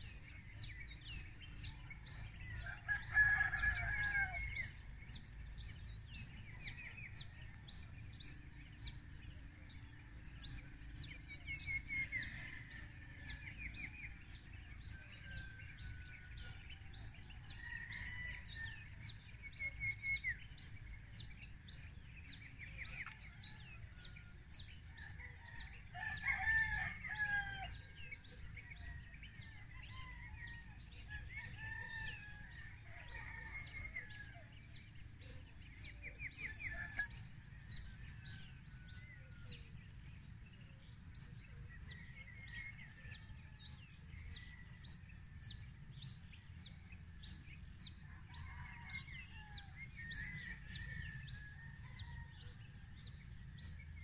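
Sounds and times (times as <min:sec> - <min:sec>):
scattered birdsong: 0:00.0 - 0:54.0
rooster crowing: 0:02.5 - 0:04.7, 0:25.0 - 0:27.9, 0:29.7 - 0:34.5, 0:48.1 - 0:52.4.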